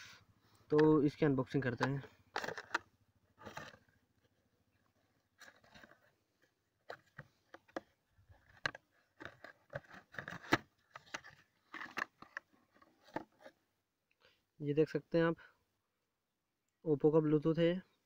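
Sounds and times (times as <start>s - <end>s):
paperboard box being opened: 1.8s - 13.6s
crinkles scrapes and taps: 3.4s - 13.6s.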